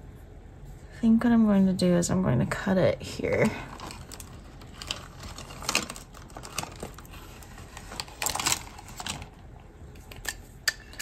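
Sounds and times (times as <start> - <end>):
pens and tools clattering: 3.7 - 9.4.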